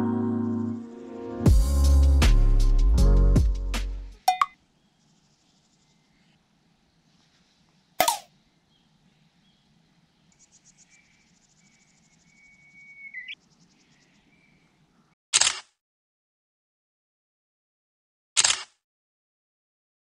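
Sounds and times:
thin whistling tone: 0:12.3 - 0:13.4.

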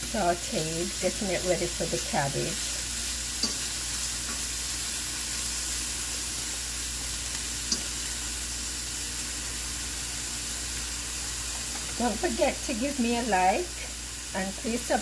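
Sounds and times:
vegetables sizzling in oil: 0:00.0 - 0:15.0
metal fork clicking on pan: 0:03.4 - 0:04.4, 0:07.7 - 0:08.0.

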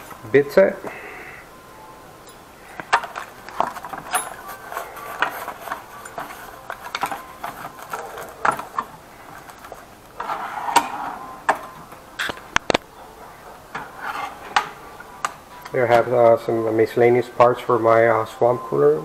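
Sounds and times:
metal tools clinking and knocking: 0:02.2 - 0:12.7
drawer sliding on runners: 0:10.2 - 0:12.4.

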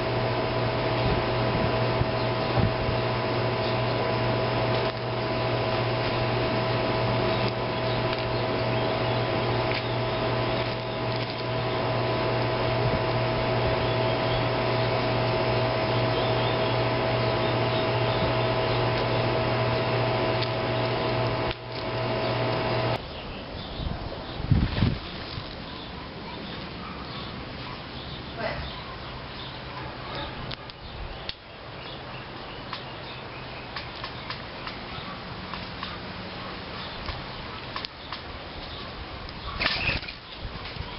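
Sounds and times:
motor-driven machine whirring: 0:00.0 - 0:23.0.

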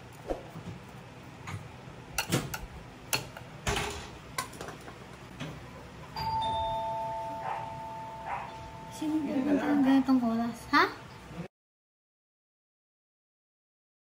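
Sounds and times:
two-note ding-dong chime: 0:06.2 - 0:09.4.

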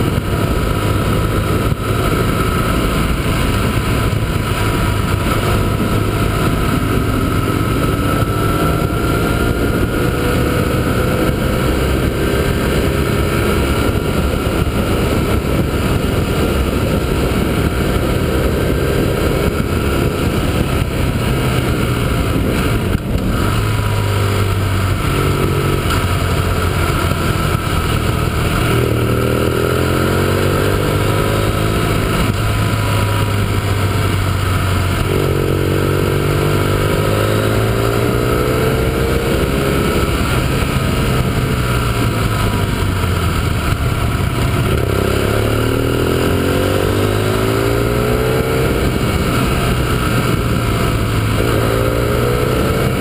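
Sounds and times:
motorcycle engine: 0:00.0 - 0:53.0
wind noise on microphone: 0:00.0 - 0:53.0.

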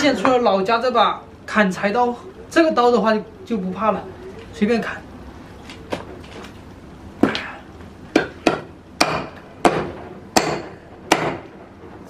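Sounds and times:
knife chopping bones: 0:08.1 - 0:11.4.

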